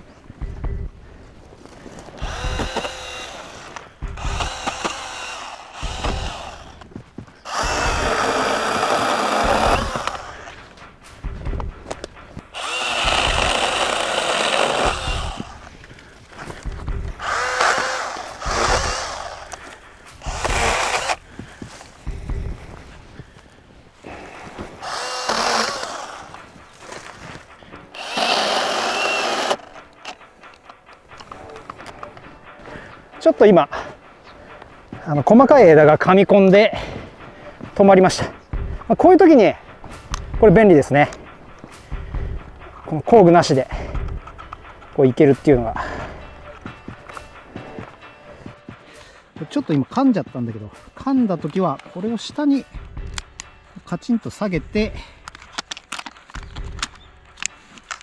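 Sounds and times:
cordless chainsaw cutting branches: 0:02.2 - 0:06.8, 0:07.4 - 0:10.5, 0:12.5 - 0:15.7, 0:17.2 - 0:21.2, 0:24.8 - 0:27.2, 0:27.9 - 0:29.7.

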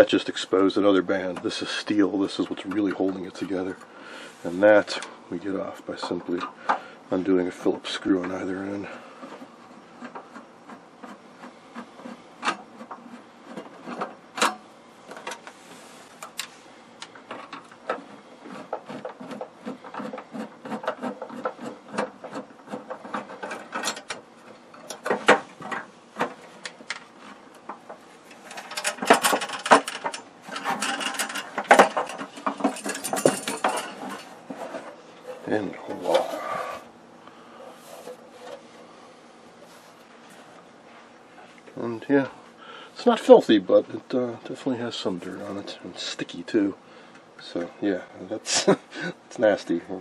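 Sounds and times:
metal and plastic parts clattering: 0:12.0 - 0:36.3
screwdriver clicks and metal scrapes: 0:28.3 - 0:34.9.

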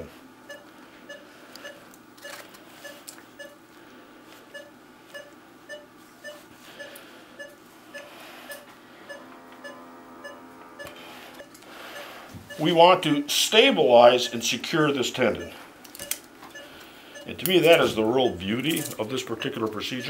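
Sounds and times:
patient monitor beeping: 0:00.0 - 0:03.7, 0:04.5 - 0:20.0.

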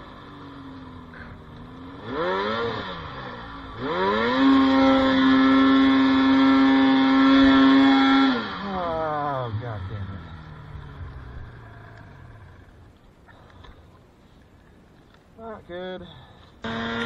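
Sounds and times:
snowmobile engine revving: 0:00.0 - 0:12.8, 0:16.6 - 0:17.0.

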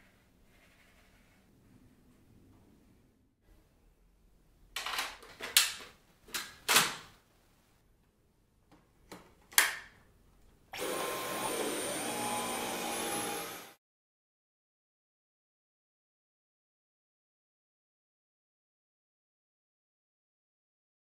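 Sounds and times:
vacuum cleaner whining: 0:10.8 - 0:13.8.

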